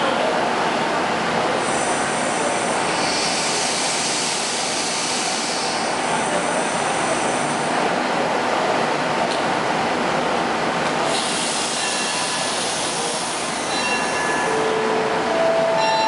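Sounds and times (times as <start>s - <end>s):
diesel railcar engines running: 0.0s - 16.0s
loud hiss: 11.1s - 13.7s.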